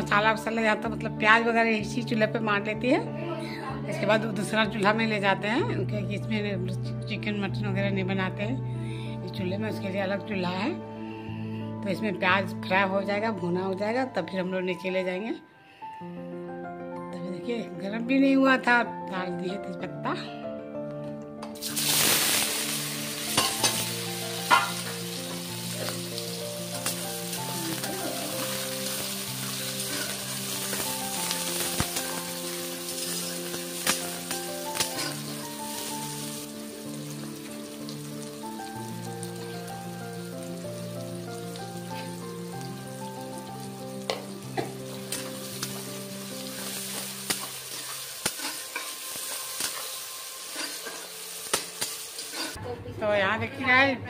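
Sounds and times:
onions sizzling in oil: 0:21.6 - 0:52.6
metal spatula knocking on pan: 0:24.5 - 0:24.8
spatula scraping metal pan: 0:47.7 - 0:51.1, 0:52.2 - 0:52.6.

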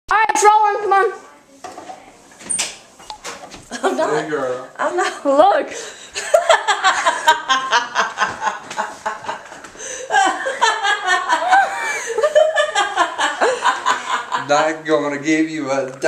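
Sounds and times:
woman laughing hard: 0:06.2 - 0:14.4.

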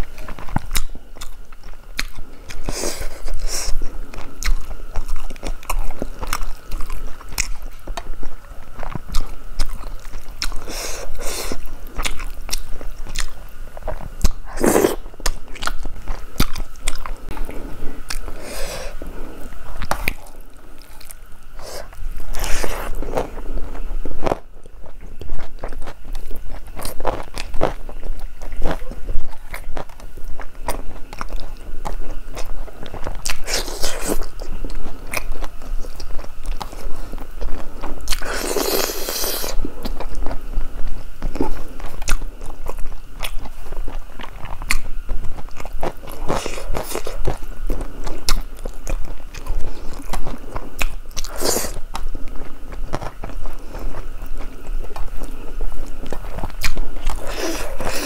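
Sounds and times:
wet chewing and lip smacks: 0:00.2 - 0:14.4, 0:41.2 - 0:58.0.

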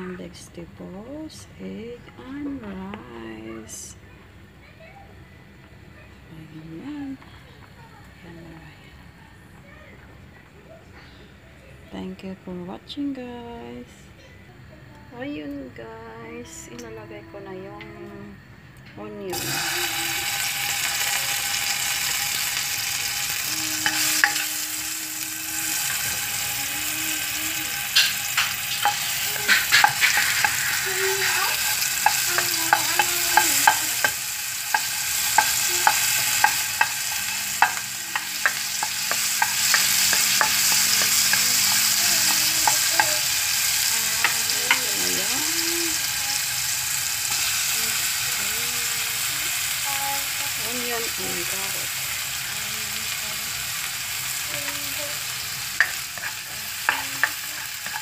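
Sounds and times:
butter sizzling in a wok: 0:19.3 - 0:58.0
spatula scraping and tapping pan: 0:20.5 - 0:24.6, 0:27.7 - 0:45.3, 0:55.8 - 0:58.0.

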